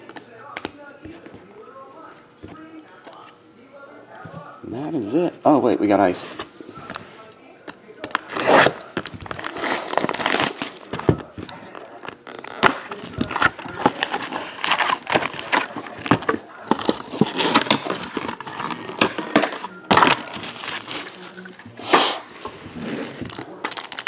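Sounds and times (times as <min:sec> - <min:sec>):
plastic wrap crinkling: 0:08.0 - 0:21.7, 0:22.6 - 0:24.0
foil packs rustling: 0:08.1 - 0:21.7, 0:22.8 - 0:24.0
cardboard tearing: 0:08.2 - 0:11.1, 0:11.7 - 0:21.4, 0:22.7 - 0:24.0.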